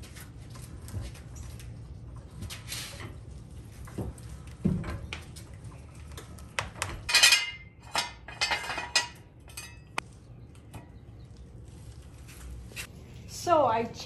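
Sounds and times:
metal scraping rattle: 7.0s - 10.0s.

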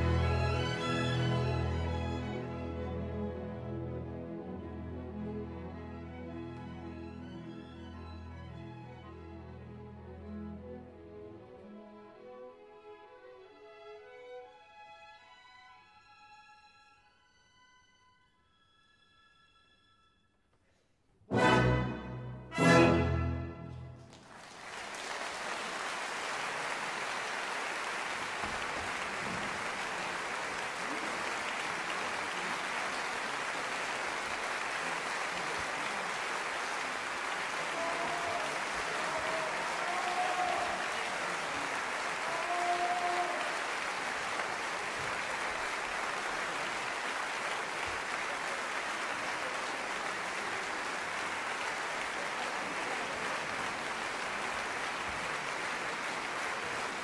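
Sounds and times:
audience applauding: 24.0s - 57.0s
cheers: 24.4s - 57.0s.

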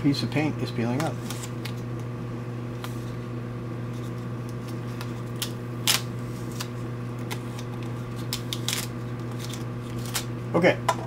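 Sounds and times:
plastic and tape rustling: 3.9s - 10.3s.

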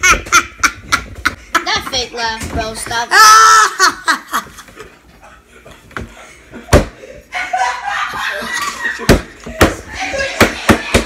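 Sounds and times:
child laughing: 3.1s - 4.7s
hand slapping tabletop: 9.0s - 11.0s.

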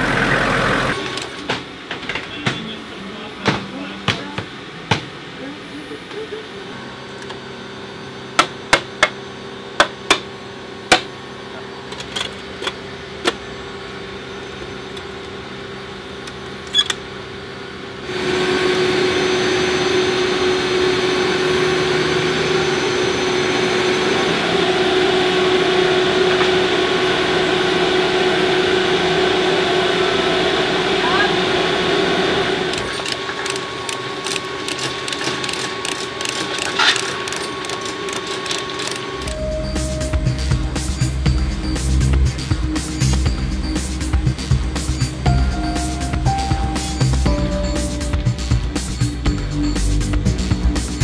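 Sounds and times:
mechanical drone: 0.0s - 2.2s, 10.6s - 51.0s
steady hum: 12.8s - 51.0s
metal clicks and clanks: 32.7s - 39.2s.

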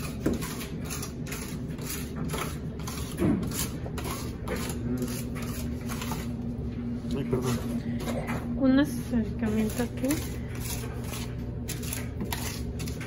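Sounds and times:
hand tool scraping tiles: 0.0s - 6.3s, 9.4s - 13.0s.

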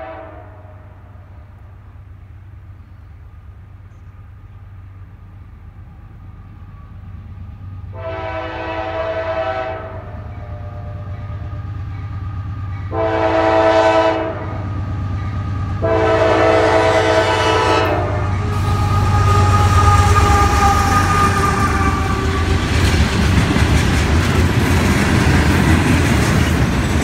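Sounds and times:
train air horn blasts: 0.0s - 1.5s, 7.9s - 11.7s, 12.8s - 22.8s.

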